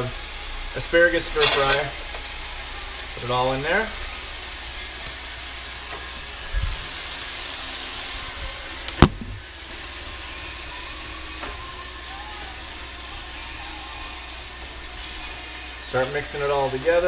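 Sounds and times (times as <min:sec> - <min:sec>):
vegetables sizzling in frying pan: 0:00.0 - 0:17.0
dull thump: 0:08.9 - 0:09.4
sharp knock: 0:09.0 - 0:09.4.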